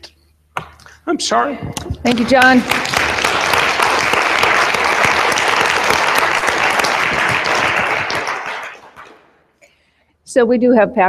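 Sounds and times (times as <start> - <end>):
audience applauding: 2.1 - 9.4.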